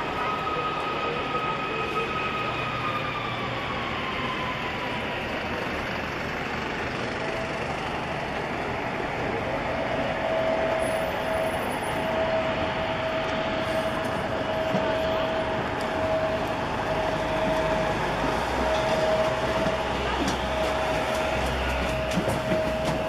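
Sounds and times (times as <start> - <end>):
aircraft and machinery roar: 0.0 - 23.0
steady whine: 7.0 - 23.0.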